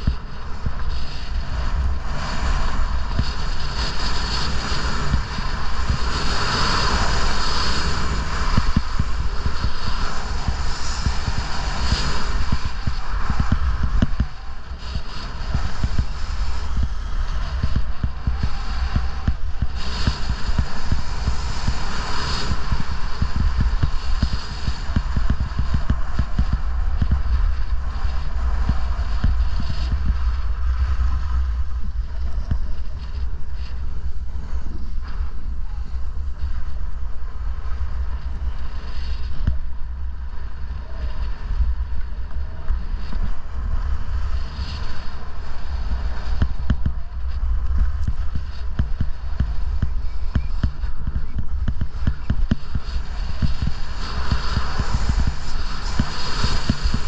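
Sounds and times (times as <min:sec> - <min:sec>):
skis carving on packed snow: 0:00.0 - 0:57.0
wind buffeting microphone: 0:00.0 - 0:57.0.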